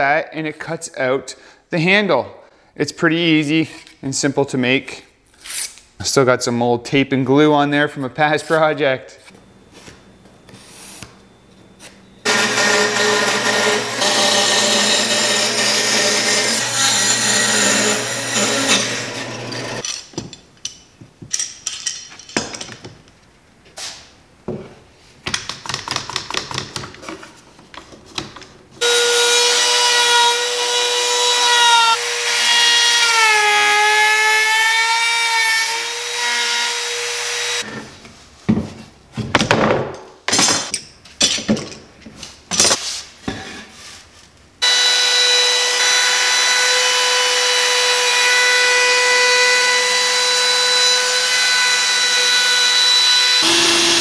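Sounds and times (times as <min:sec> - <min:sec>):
bandsaw cutting wood: 0:12.2 - 0:19.8, 0:28.8 - 0:37.7, 0:44.6 - 0:54.0
router whining: 0:12.2 - 0:19.8, 0:44.6 - 0:54.0.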